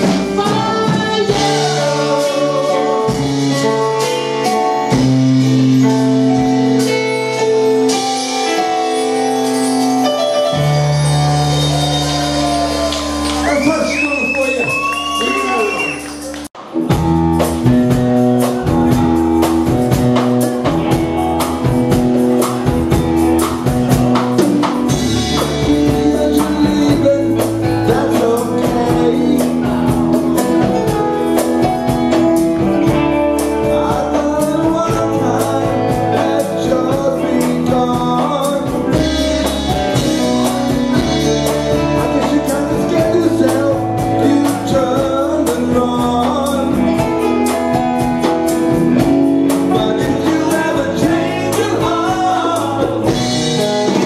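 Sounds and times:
live band playing: 0:00.0 - 0:54.0.

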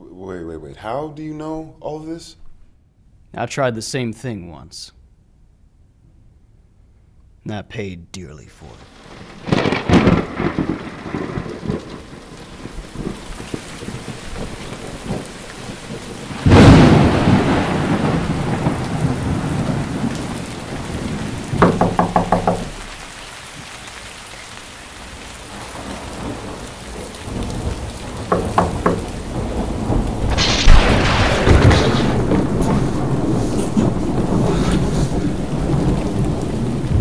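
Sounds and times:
steady rain: 0:08.6 - 0:37.0
thunder cracking and rumbling: 0:08.7 - 0:23.0, 0:25.4 - 0:37.0.

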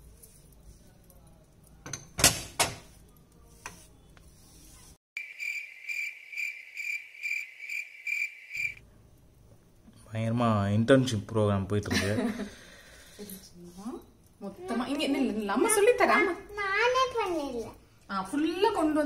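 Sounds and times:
cricket chirping: 0:05.2 - 0:08.8.

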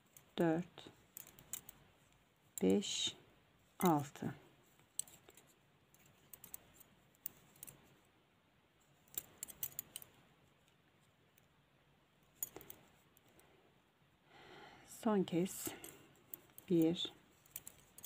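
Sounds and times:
knitting needles clicking: 0:01.0 - 0:02.7, 0:04.8 - 0:07.8, 0:09.0 - 0:11.5, 0:12.3 - 0:13.5, 0:15.6 - 0:18.0.

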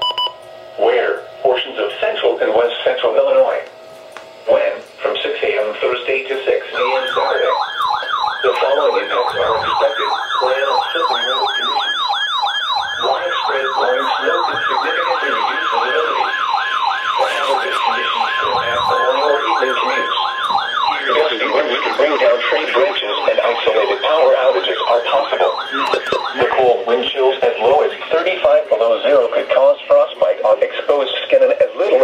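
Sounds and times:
steady high alarm tone: 0:00.0 - 0:32.0
rapid warbling siren: 0:05.1 - 0:32.0
faint broadcast voice: 0:13.0 - 0:16.3, 0:17.2 - 0:20.2, 0:20.9 - 0:32.0.

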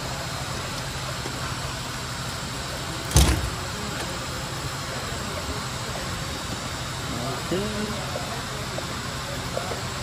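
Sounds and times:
starter motor knocking against metal: 0:03.1 - 0:03.6.

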